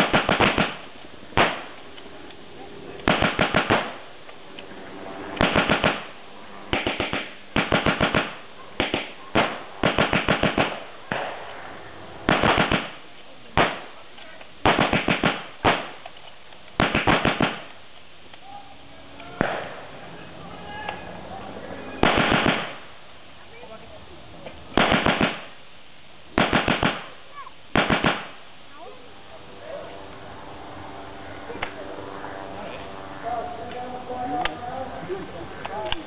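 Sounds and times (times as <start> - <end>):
machine guns firing bursts: 0.0 - 1.7, 3.0 - 4.0, 5.4 - 6.1, 6.7 - 10.9, 12.3 - 13.0, 14.6 - 16.0, 16.8 - 17.7, 22.0 - 22.8, 24.8 - 25.5, 26.4 - 27.1, 27.7 - 28.3.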